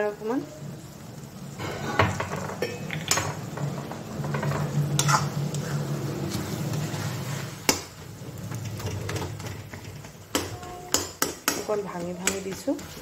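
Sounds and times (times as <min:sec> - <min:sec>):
syrup bubbling and sizzling: 0:00.0 - 0:13.0
spoon scraping through mix: 0:05.0 - 0:07.7.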